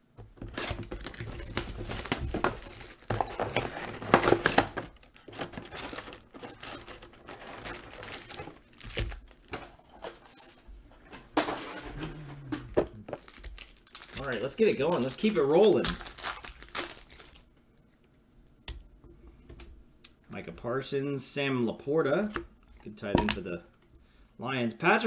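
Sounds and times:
foil packs rustling: 0.4 - 10.4, 11.4 - 17.5
plastic shrink wrap tearing: 0.6 - 9.5, 13.1 - 17.5.

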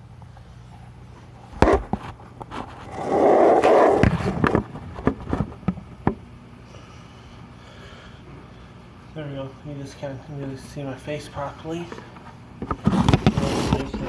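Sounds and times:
rubbing and scraping: 1.6 - 5.7, 12.6 - 14.0.

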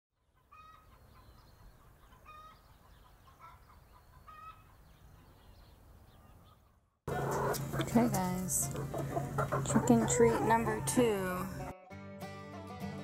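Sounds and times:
chickens clucking: 0.2 - 11.7
loud chicken calls: 0.3 - 1.2, 1.8 - 4.8, 6.5 - 7.8.

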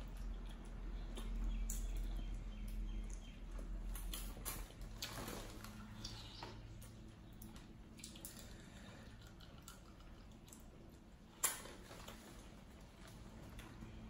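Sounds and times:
wet eating and handling sounds: 0.0 - 14.0.

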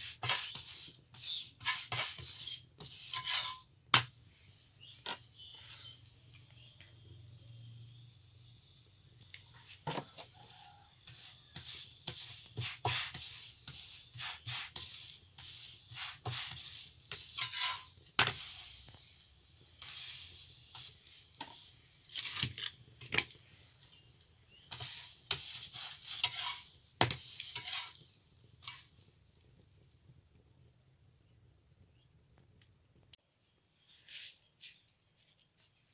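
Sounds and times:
metal spatula scraping griddle: 0.0 - 4.2, 4.8 - 6.0, 11.0 - 19.1, 19.8 - 23.3, 24.5 - 29.1
food sizzling: 0.0 - 29.3.

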